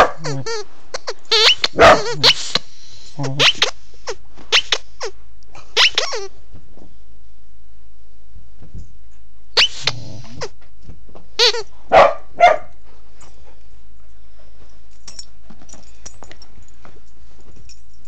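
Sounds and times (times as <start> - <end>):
dog barking and yipping: 0.0 - 0.4, 1.4 - 2.5, 11.9 - 12.8
faint scuffling: 8.6 - 18.0.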